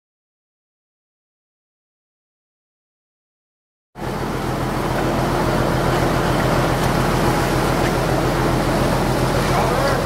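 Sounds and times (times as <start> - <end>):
boat engine hum: 4.0 - 10.0
wind and water hiss: 4.0 - 10.0.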